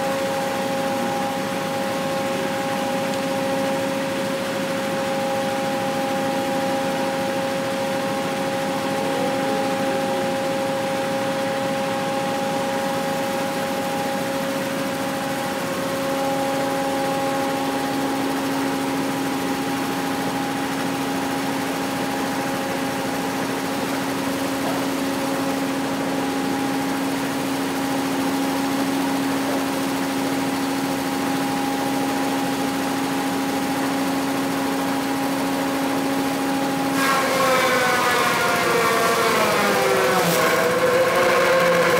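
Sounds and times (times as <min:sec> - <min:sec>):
diesel engine running: 0:00.0 - 0:36.9
machine drums spinning: 0:36.9 - 0:41.9.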